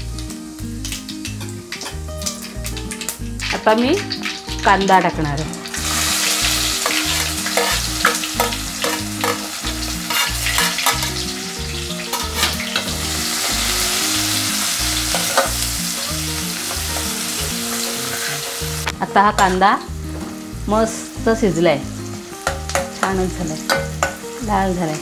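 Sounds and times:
onion sizzling in hot oil: 0.0 - 25.0
steel spoon scraping a pot: 5.9 - 11.2, 12.1 - 12.9.

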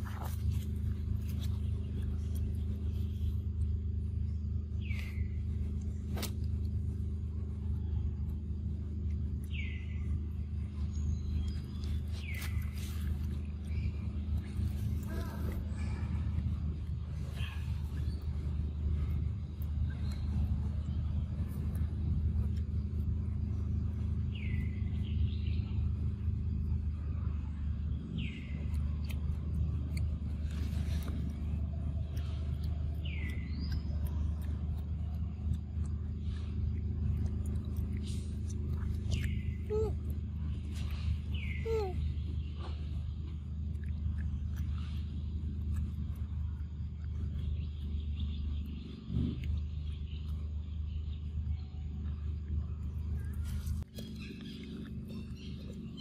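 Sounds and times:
steady low rumble: 0.0 - 56.0
bird calls: 9.2 - 26.9, 29.9 - 56.0.

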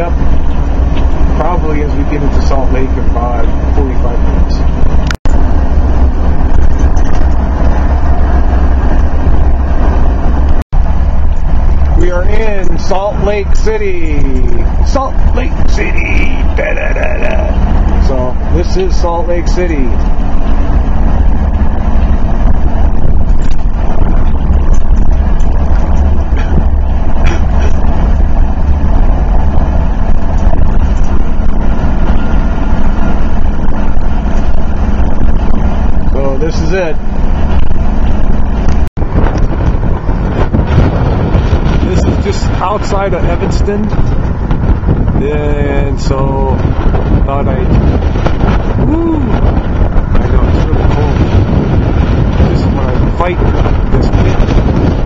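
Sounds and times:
tyre and wind noise: 0.0 - 55.0
vehicle engine low rumble: 0.0 - 55.0.

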